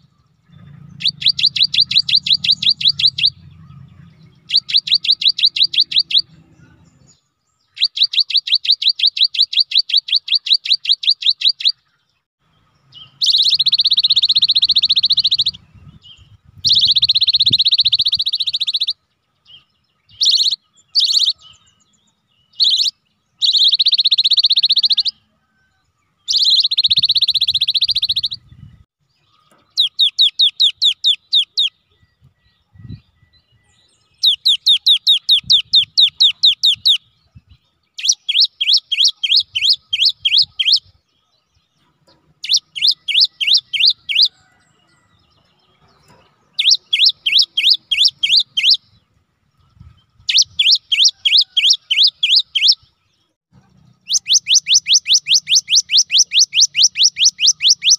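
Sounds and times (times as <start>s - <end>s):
bird whistling and trilling: 0.0s - 6.4s, 7.7s - 11.8s, 13.0s - 25.2s, 26.3s - 28.7s, 29.7s - 41.1s, 42.4s - 44.4s, 46.6s - 49.0s, 49.6s - 52.9s, 54.0s - 57.9s.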